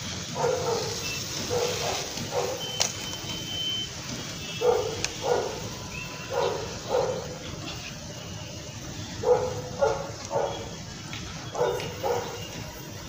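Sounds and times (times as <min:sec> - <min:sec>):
dog barking: 0:00.3 - 0:02.9, 0:04.6 - 0:07.6, 0:09.2 - 0:10.8, 0:11.5 - 0:12.7.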